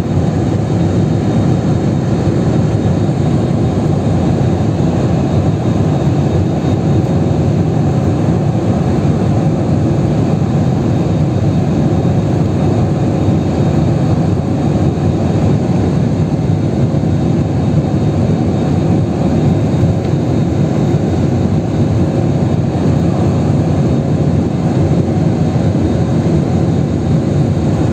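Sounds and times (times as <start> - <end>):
jet engine roar in cabin: 0.0 - 27.9.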